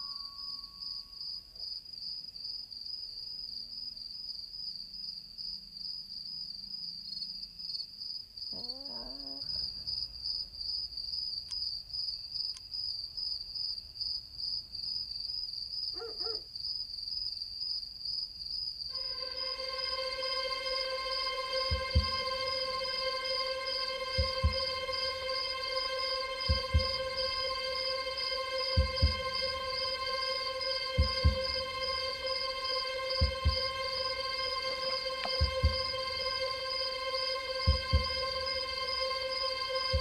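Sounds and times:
crickets chirping: 0.0s - 40.0s.

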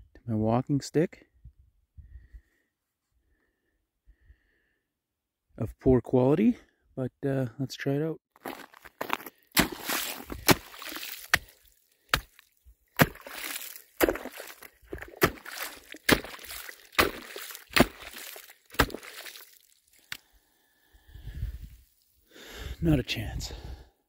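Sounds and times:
rock striking ice: 8.4s - 12.4s, 13.0s - 20.2s
slush and water sloshing: 8.4s - 20.2s.

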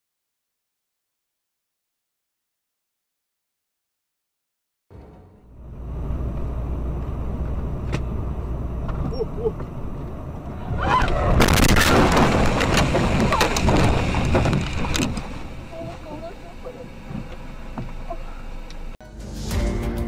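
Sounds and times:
road rumble inside vehicle: 4.9s - 19.0s
vehicle crashing and tumbling: 7.2s - 18.1s.

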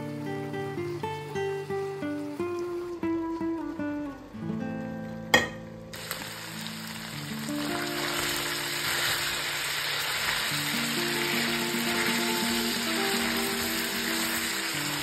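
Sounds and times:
meat sizzling in oil: 5.9s - 15.0s.

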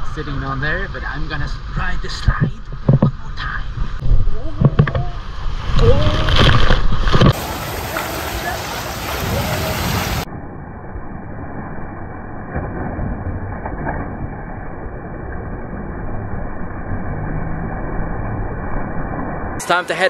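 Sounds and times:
rush of water: 3.9s - 10.3s.

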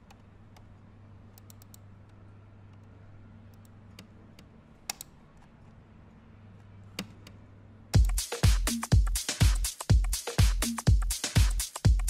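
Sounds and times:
low steady hum: 0.0s - 8.2s
laptop keyboard typing: 1.4s - 1.8s.

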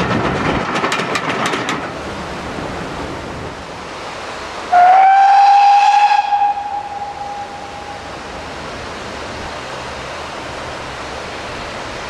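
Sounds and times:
steady rushing noise: 0.0s - 4.8s, 5.9s - 12.0s
steam whistle: 4.7s - 8.1s.

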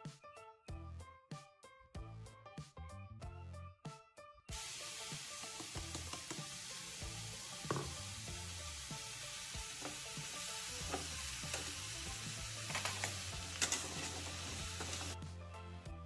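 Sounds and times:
food sizzling in hot oil: 4.5s - 15.2s
spatula clicking and scraping pan: 10.8s - 11.8s, 12.6s - 15.2s.

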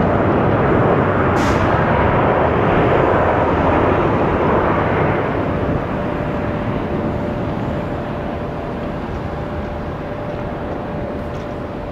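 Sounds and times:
jet engines rushing: 0.0s - 11.9s
thin steady whine: 4.3s - 11.9s.

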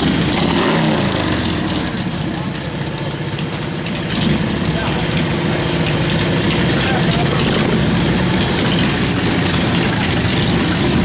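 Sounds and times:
motorcycle engines idling: 0.0s - 11.0s.

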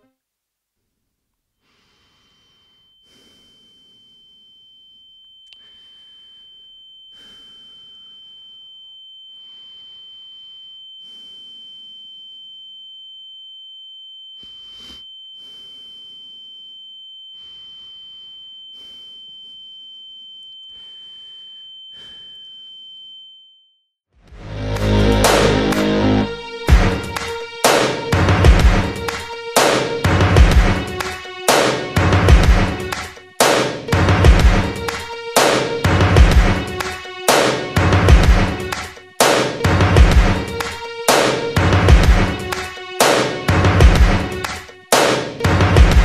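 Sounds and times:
high-pitched ringing tone: 2.2s - 23.9s
quick rhythmic breaths: 5.6s - 8.4s, 26.4s - 46.0s.

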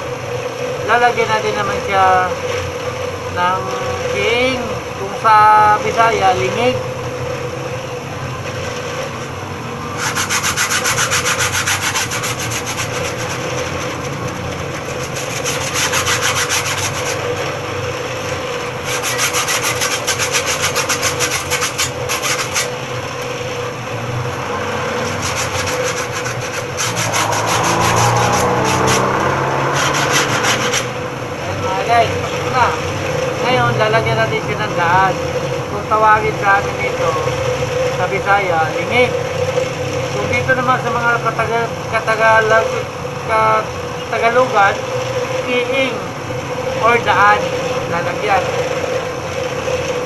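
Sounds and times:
saw blade rasping on grinding wheel: 0.6s - 50.0s
motor humming: 1.5s - 40.4s.

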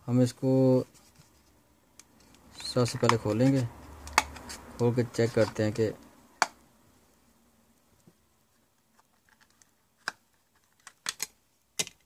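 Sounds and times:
plastic casing snapping: 9.2s - 12.0s.

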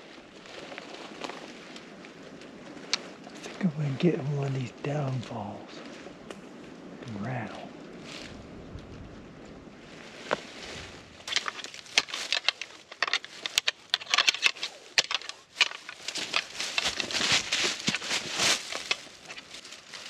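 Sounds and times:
deer antler rattling clicks: 11.3s - 17.2s, 18.7s - 19.4s.

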